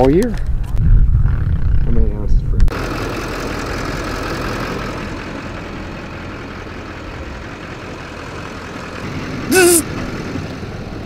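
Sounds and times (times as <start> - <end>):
truck engine idling: 2.7 - 11.0.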